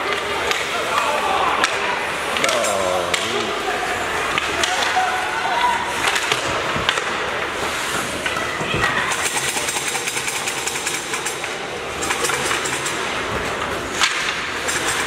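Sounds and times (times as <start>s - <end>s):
skates scraping ice: 0.0s - 9.2s
arena noise: 0.0s - 15.0s
hockey sticks clattering: 0.0s - 15.0s.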